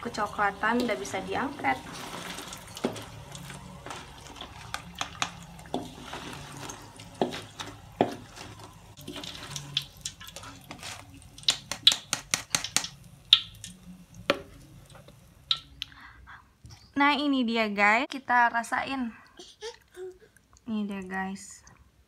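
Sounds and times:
utensils clinking and scraping wok: 0.0s - 12.9s
faint oil sizzle: 0.0s - 16.1s.

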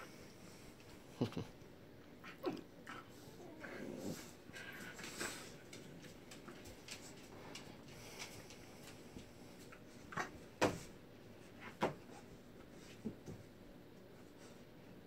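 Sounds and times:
puppies scuffling: 4.1s - 13.5s.

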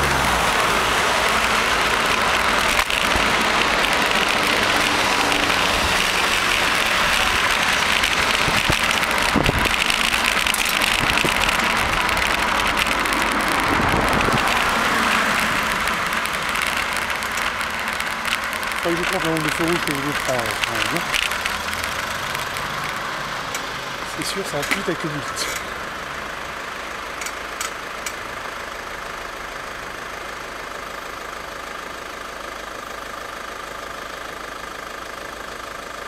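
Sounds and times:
bicycle road noise: 0.0s - 36.0s
wind rushing: 13.4s - 16.0s.

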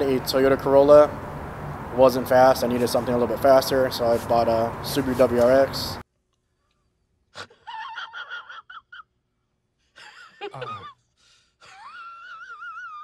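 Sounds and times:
man making squeaky whines: 10.5s - 10.9s.

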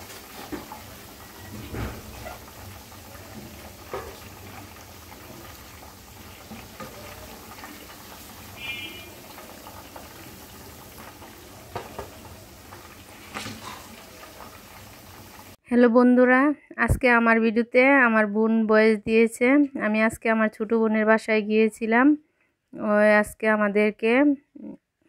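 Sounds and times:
chicken sizzling in hot oil: 0.0s - 15.6s.

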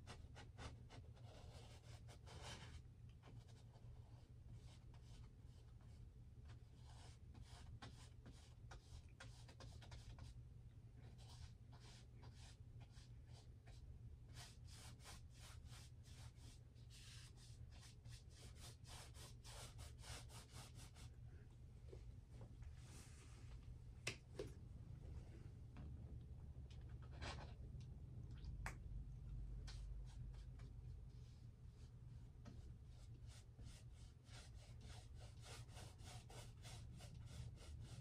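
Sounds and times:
paintbrush strokes on canvas: 29.8s - 38.0s.

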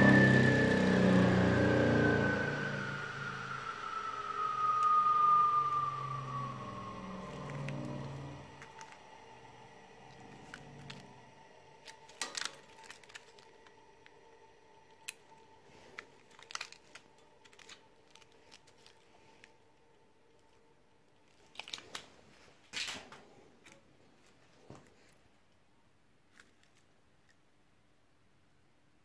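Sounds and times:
plastic crinkling: 7.1s - 20.6s, 21.2s - 25.3s, 26.2s - 27.4s
plastic clicks and rattles: 11.8s - 13.7s.

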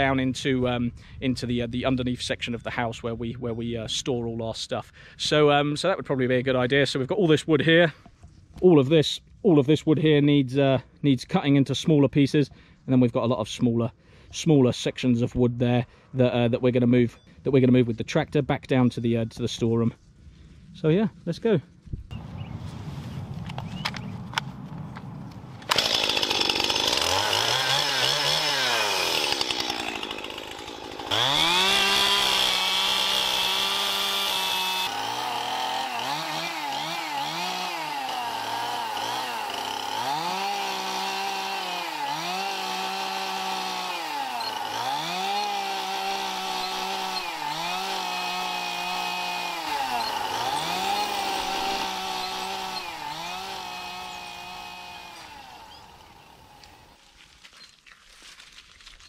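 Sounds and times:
chainsaw revving: 25.6s - 57.0s.

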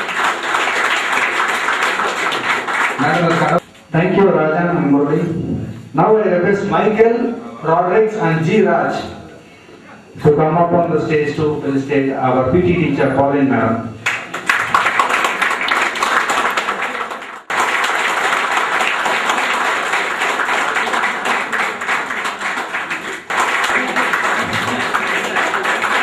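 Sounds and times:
audience applauding: 0.0s - 3.6s, 14.0s - 26.0s.

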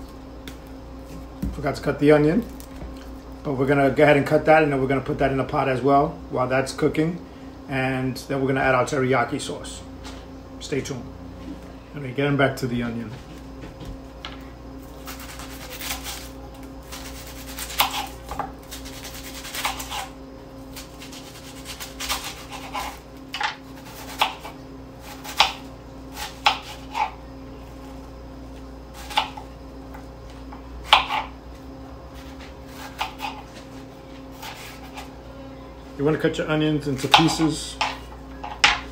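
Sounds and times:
knife chopping onion on board: 17.0s - 20.1s, 21.0s - 27.1s, 29.0s - 29.5s, 30.8s - 31.3s, 32.2s - 33.5s, 37.0s - 38.8s.

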